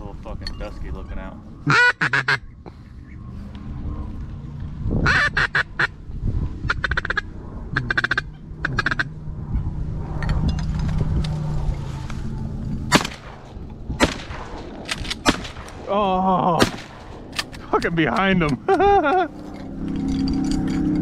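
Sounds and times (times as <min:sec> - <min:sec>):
duck quacking: 0:01.7 - 0:02.5, 0:05.0 - 0:05.9, 0:06.7 - 0:09.1
sharp cracks: 0:12.9 - 0:19.2.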